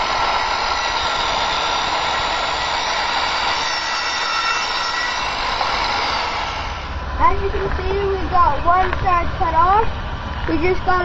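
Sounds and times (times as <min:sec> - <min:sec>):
power saw cutting wood: 0:00.0 - 0:07.0.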